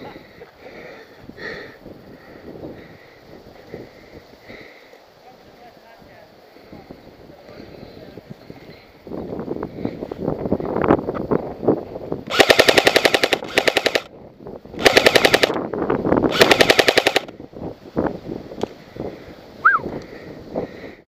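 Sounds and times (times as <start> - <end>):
airsoft rifle full-auto bursts: 12.3 - 14.1, 14.8 - 15.6, 16.3 - 17.3.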